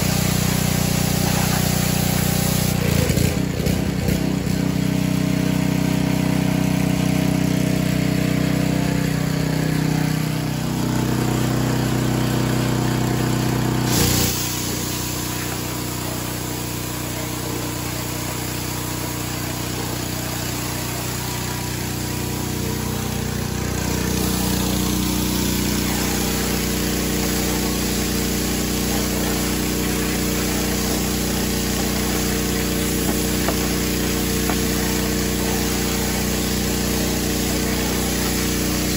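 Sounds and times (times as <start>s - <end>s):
water jet hissing: 0.0s - 3.5s, 8.2s - 38.9s
pressure washer motor hum: 0.0s - 38.9s.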